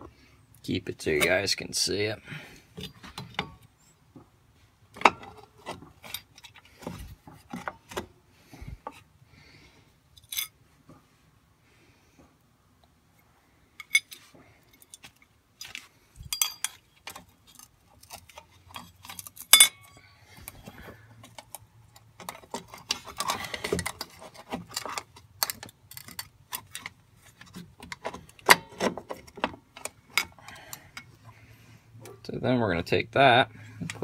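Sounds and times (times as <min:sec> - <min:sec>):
metal brake parts clicking: 0:16.2 - 0:20.0.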